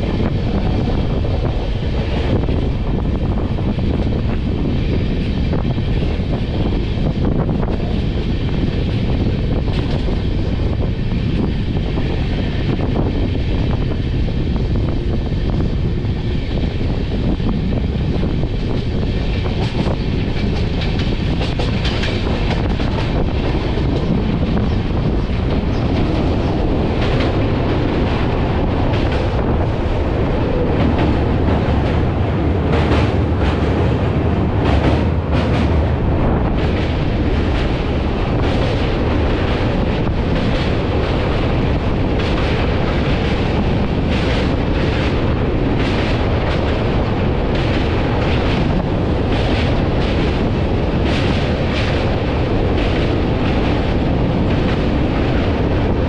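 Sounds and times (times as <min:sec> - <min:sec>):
train rumbling: 0:00.0 - 0:56.0
wheels clacking over rails: 0:18.0 - 0:56.0.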